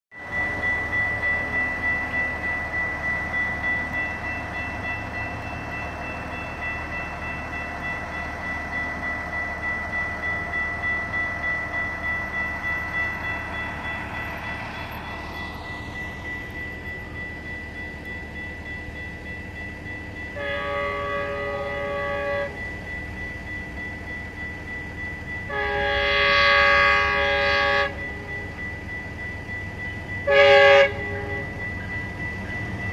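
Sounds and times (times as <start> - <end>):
crossing warning bell ringing: 0.1 - 32.9
train horn blasts: 20.4 - 22.6, 25.5 - 28.5, 30.2 - 31.5.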